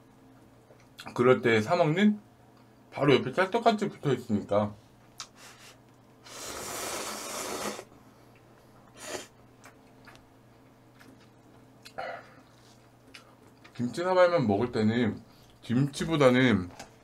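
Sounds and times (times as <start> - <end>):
soft mouth sounds: 6.2 - 10.2
noodles slurped: 6.3 - 7.9.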